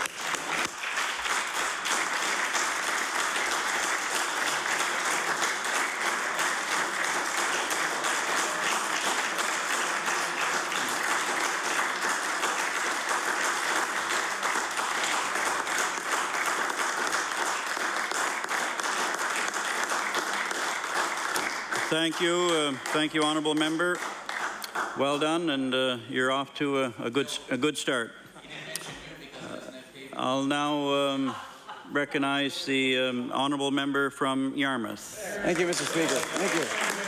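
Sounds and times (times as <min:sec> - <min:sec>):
crowd applauding: 0:00.0 - 0:25.4, 0:35.4 - 0:37.0.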